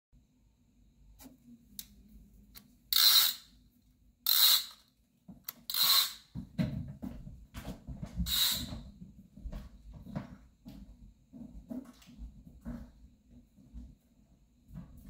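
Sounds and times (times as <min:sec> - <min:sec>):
toy fishing reel whirring: 0:02.9 - 0:03.5, 0:04.3 - 0:04.8, 0:05.7 - 0:06.2, 0:08.3 - 0:08.7
footsteps on hardwood floor: 0:06.4 - 0:14.0.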